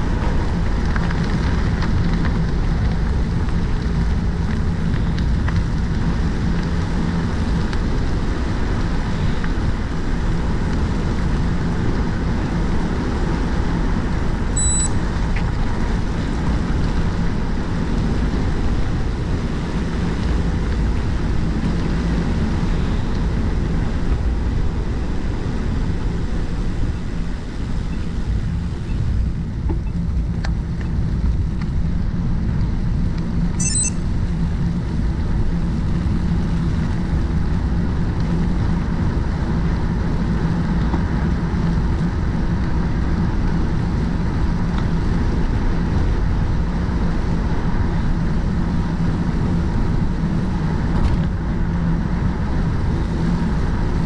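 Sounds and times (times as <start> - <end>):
bicycle tyres humming: 0.0 - 54.0
wind rush on microphone: 0.0 - 54.0
high-pitched chirp: 14.6 - 15.0, 33.6 - 34.0.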